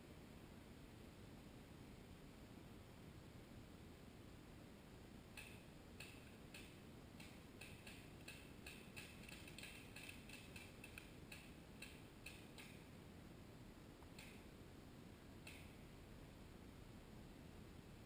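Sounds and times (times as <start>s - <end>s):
faint irregular clicking: 5.3s - 12.9s, 14.0s - 14.5s, 15.4s - 15.9s.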